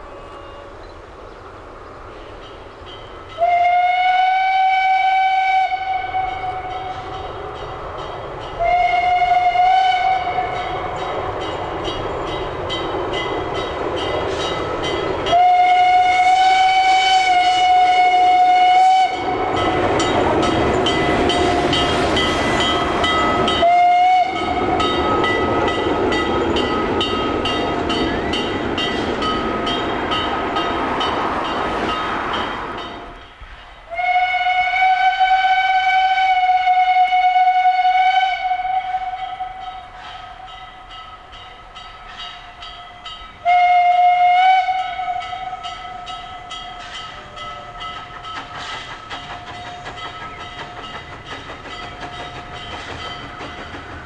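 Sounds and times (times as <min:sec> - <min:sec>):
steam locomotive whistle: 0:00.0 - 0:00.9, 0:03.3 - 0:07.7, 0:08.4 - 0:11.5, 0:13.6 - 0:33.2, 0:33.8 - 0:41.4, 0:42.0 - 0:53.1
steam exhaust chuffing: 0:43.4 - 0:54.0.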